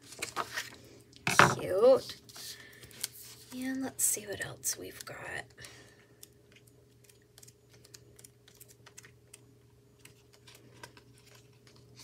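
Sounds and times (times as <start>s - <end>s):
glossy pages flipping: 0.0s - 0.8s, 2.2s - 3.6s, 6.2s - 12.0s
low steady hum: 0.0s - 12.0s.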